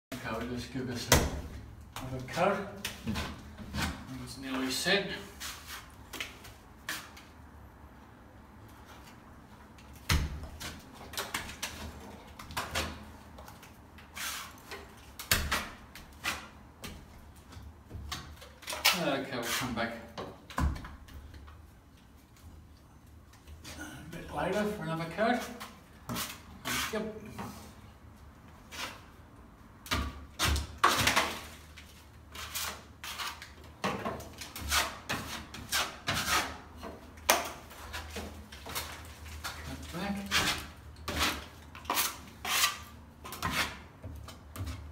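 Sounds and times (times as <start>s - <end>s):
plastering knife scraping: 5.2s - 7.2s, 12.6s - 16.6s, 18.3s - 20.1s, 24.6s - 27.7s, 30.4s - 44.9s.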